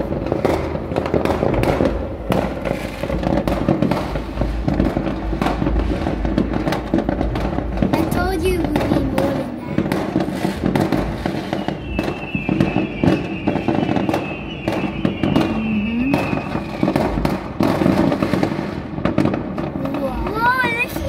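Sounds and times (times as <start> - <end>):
fireworks bangs and crackles: 0.0 - 21.0
faint high falling tone: 15.4 - 16.5.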